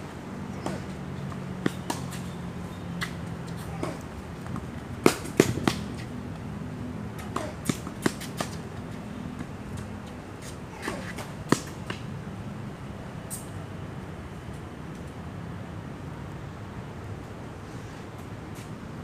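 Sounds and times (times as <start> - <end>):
tennis ball struck by rackets: 0.6 - 1.0, 3.0 - 6.0, 7.2 - 8.6, 10.8 - 12.0.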